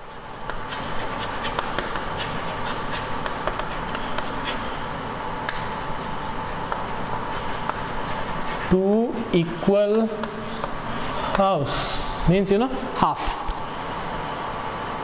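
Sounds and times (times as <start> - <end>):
chalk scratching on a blackboard: 0.0 - 4.8, 5.5 - 11.5.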